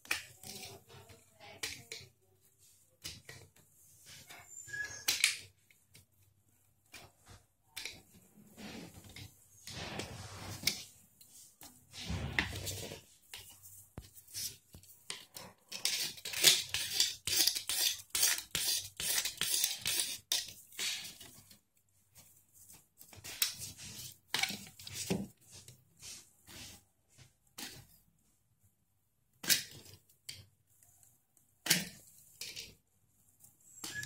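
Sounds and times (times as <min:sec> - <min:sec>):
knife scraping plastic: 0:06.9 - 0:26.8.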